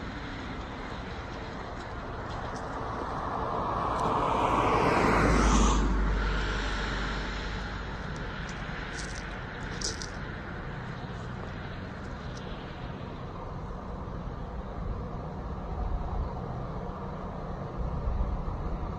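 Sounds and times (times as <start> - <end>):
car driving past: 2.8 - 10.1.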